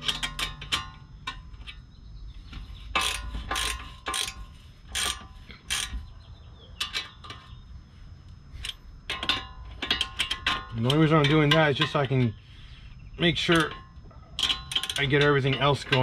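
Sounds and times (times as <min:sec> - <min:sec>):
hand ratchet clicking: 0:02.9 - 0:06.0, 0:08.6 - 0:12.2, 0:14.4 - 0:16.0.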